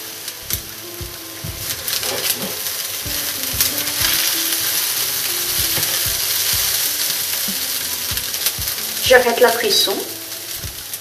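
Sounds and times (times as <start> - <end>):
rice sizzling in a frying pan: 0.0 - 11.0.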